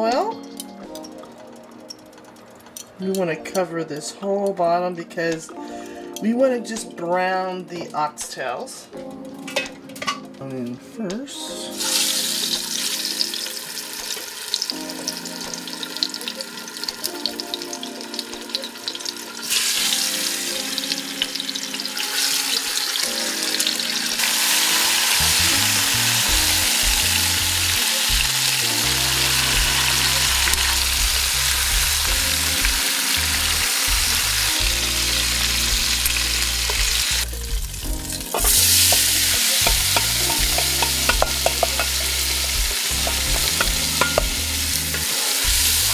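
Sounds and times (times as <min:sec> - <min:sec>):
meat sizzling in oil: 0:11.7 - 0:45.9
music with deep bass: 0:24.9 - 0:45.9
vegetables stirred in a pot: 0:38.1 - 0:45.9.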